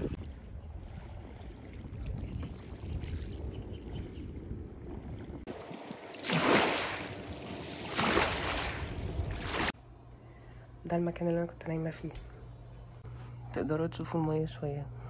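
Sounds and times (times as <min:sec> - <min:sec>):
wind rumbling on microphone: 0:00.0 - 0:05.9, 0:08.4 - 0:09.7
lake water noise: 0:00.0 - 0:09.8.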